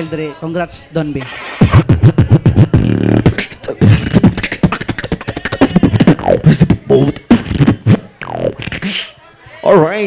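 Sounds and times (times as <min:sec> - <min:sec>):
person beatboxing: 0:01.2 - 0:09.2.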